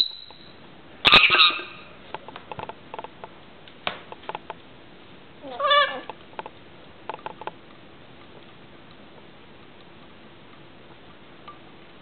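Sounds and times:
lorikeet call: 0.0 - 1.9.

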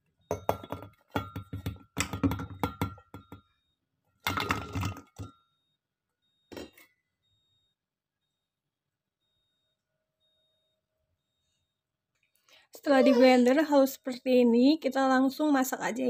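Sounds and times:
vegetables clinking into glass jar: 4.2 - 5.3.

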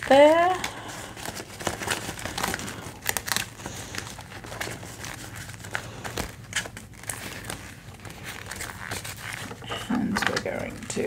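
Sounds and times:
plastic crinkling and rustling: 0.0 - 11.0.

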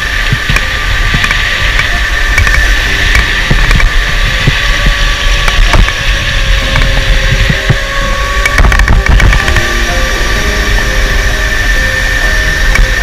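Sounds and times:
electric motor whine: 0.0 - 13.0
low rumble: 0.0 - 13.0.

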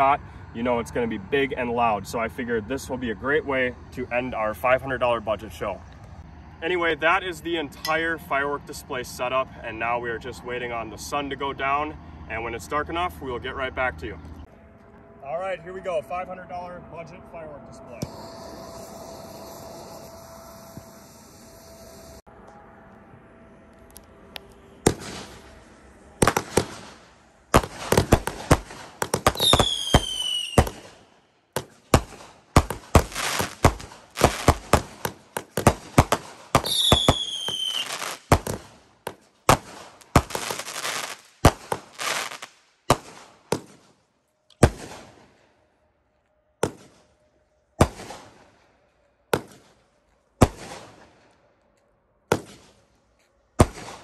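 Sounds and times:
falling firework whistles: 18.0 - 22.3, 26.2 - 38.8, 39.5 - 43.8
firework shots and bursts: 24.8 - 25.6, 26.2 - 44.0, 44.6 - 45.3, 46.6 - 47.1, 47.8 - 48.6, 49.3 - 49.8, 50.4 - 51.2, 52.3 - 52.8, 53.6 - 54.0.

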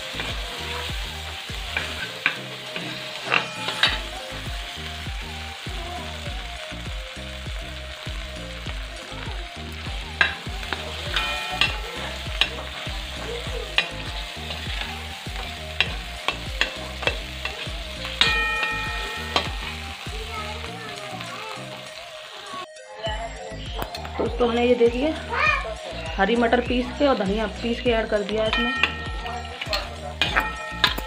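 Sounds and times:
spatula clinking on metal: 0.0 - 4.4, 10.2 - 21.5, 26.8 - 31.0
peas sizzling in a pan: 0.0 - 22.7, 23.5 - 31.0.

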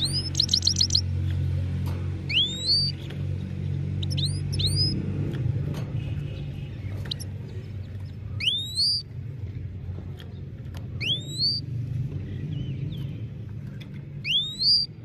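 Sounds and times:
goldfinch whistled calls: 0.0 - 1.1, 2.3 - 3.1, 4.0 - 5.0, 8.4 - 9.1, 11.0 - 11.6, 14.2 - 15.0.

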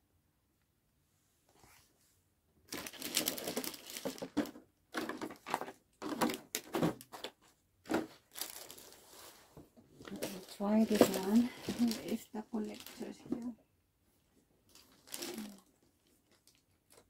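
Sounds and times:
plastic packaging crinkling: 2.7 - 7.3, 7.9 - 9.4, 10.0 - 13.6, 14.7 - 17.0.

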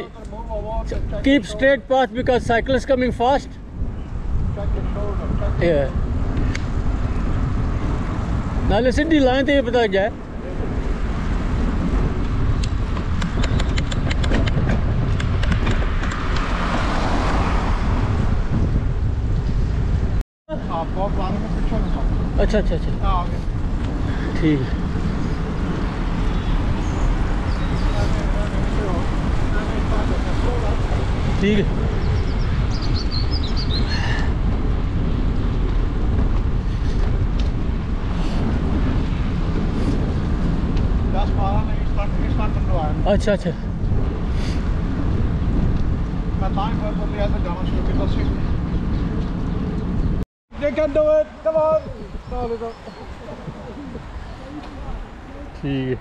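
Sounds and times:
wind buffeting microphone: 0.0 - 56.0
car passing by: 15.6 - 18.8.

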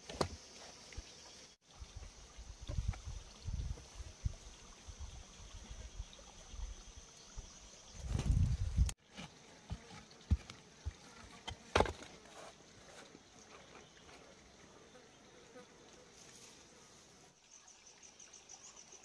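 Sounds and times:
rustles of handling soil and bamboo: 8.0 - 14.3.

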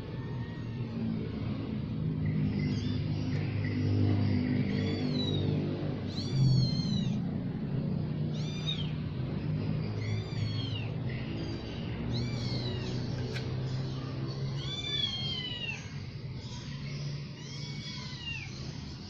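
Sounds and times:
low motor hum: 0.0 - 17.6
kittens mewing: 4.5 - 18.8.

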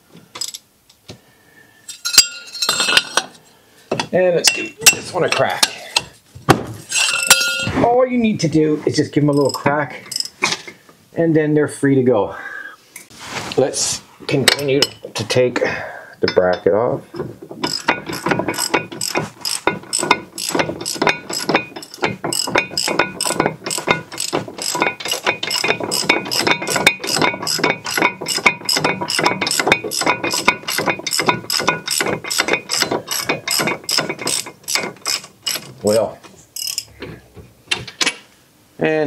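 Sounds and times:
socket ratchet clicking: 10.1 - 10.3, 36.6 - 36.9.

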